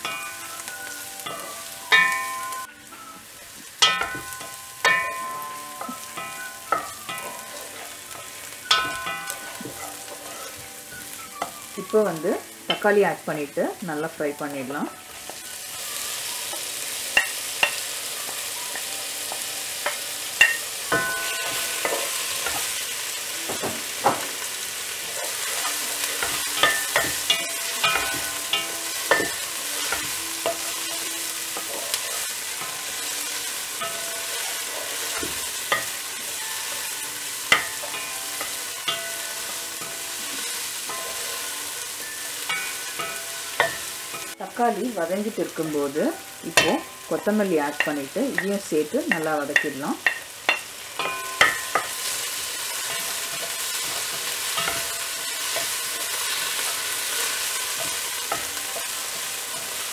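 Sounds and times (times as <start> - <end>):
vegetables sizzling in oil: 0.0 - 59.9
spatula knocking and scraping pan: 25.1 - 36.0.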